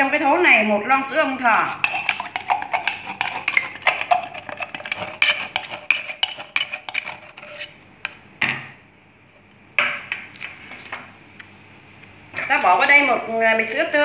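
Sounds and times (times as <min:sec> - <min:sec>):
chopsticks scraping a tin can: 0:01.8 - 0:07.8.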